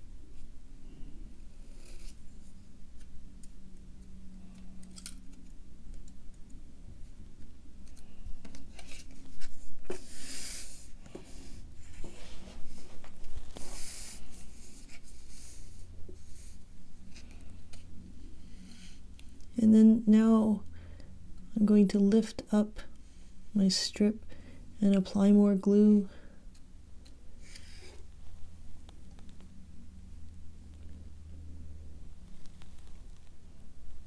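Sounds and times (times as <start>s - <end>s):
card sliding across a tabletop: 8.5s - 17.8s.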